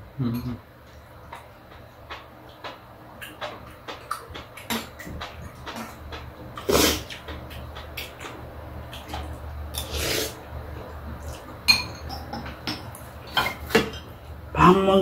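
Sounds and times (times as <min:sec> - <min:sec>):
spoons clinking on ceramic bowls: 0:11.7 - 0:14.1.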